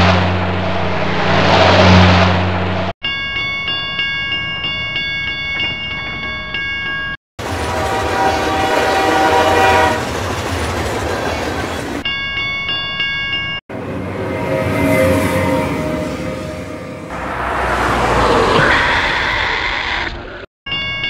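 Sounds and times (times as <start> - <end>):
train rumbling past: 0.0 - 2.9, 7.4 - 12.0, 13.7 - 19.0.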